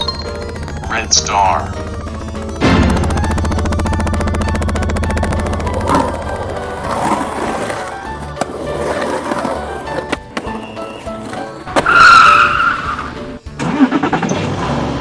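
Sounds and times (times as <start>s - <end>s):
cartoon vehicle sound effects: 0.0s - 7.2s
upbeat background music: 0.0s - 14.2s.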